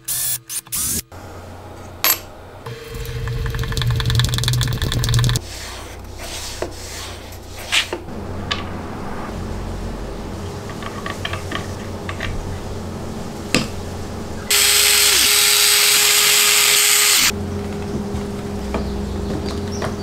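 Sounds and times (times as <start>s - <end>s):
power driver whirring: 14.5s - 17.3s.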